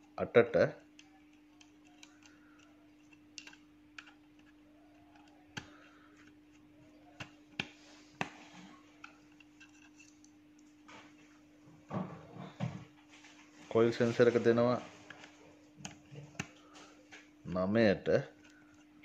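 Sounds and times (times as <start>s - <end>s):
faint steady hum: 0.0s - 19.0s
screwdriver clicking on terminals: 0.9s - 4.5s.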